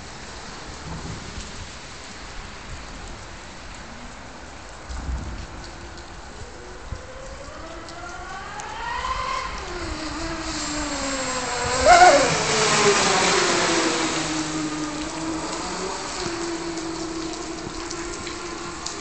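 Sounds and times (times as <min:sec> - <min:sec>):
rc boat motor whining: 0:07.1 - 0:19.0.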